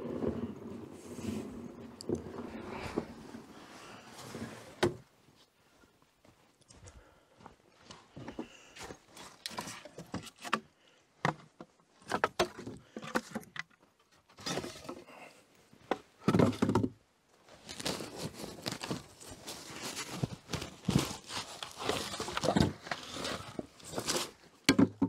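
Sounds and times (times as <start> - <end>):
firewood logs knocking together: 9.5 - 13.8, 15.9 - 17.0, 24.6 - 25.0.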